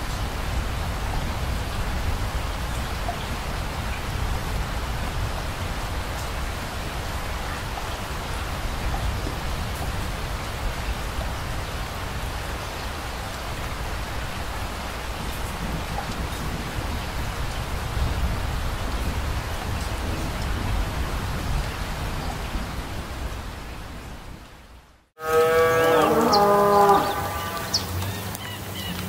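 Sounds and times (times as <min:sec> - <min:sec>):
rain falling on wet surface: 0:00.0 - 0:29.0.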